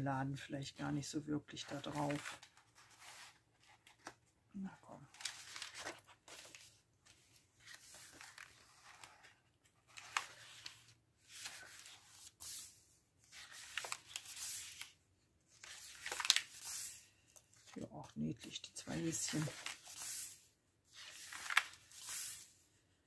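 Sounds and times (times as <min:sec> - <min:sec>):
paper pages rustling: 0:01.6 - 0:04.4, 0:05.0 - 0:22.9.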